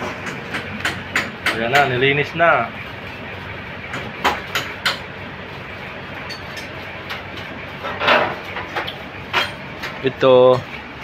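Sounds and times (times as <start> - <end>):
workshop background hum: 0.0 - 11.0
metal engine parts clinking: 6.2 - 6.8.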